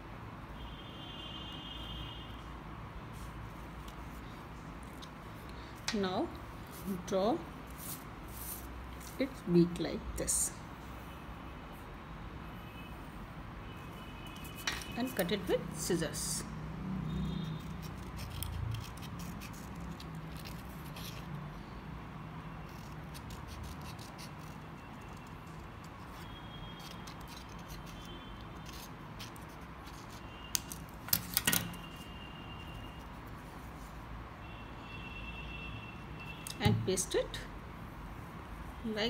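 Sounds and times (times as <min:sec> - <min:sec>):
scissors snipping paper: 0:17.6 - 0:21.3, 0:22.7 - 0:31.8.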